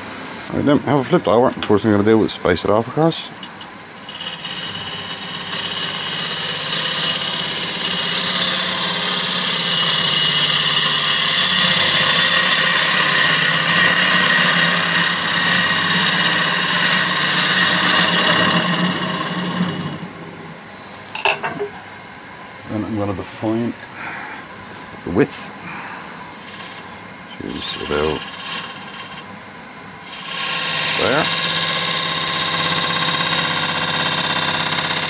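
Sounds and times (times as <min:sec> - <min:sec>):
lathe humming: 0:00.0 - 0:20.3, 0:26.2 - 0:29.4, 0:30.0 - 0:35.0
gouge cutting wood hiss: 0:03.4 - 0:19.9, 0:26.2 - 0:29.3, 0:30.0 - 0:35.0.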